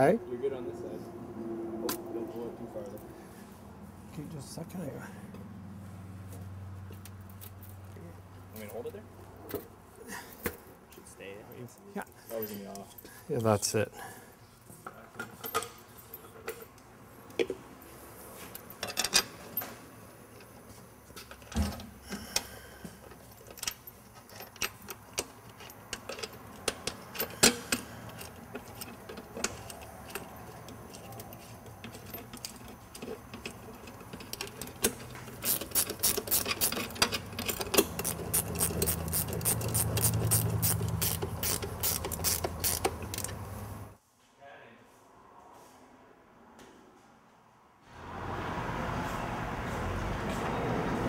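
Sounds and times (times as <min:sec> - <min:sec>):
metal tools clinking on bolts: 0:14.8 - 0:16.8, 0:18.5 - 0:19.8, 0:23.0 - 0:43.4
ratchet clicking: 0:31.9 - 0:43.4.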